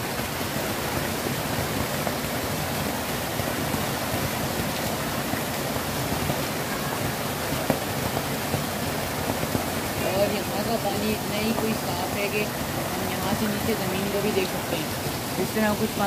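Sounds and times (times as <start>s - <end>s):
waterfall splashing into pool: 0.0s - 16.0s.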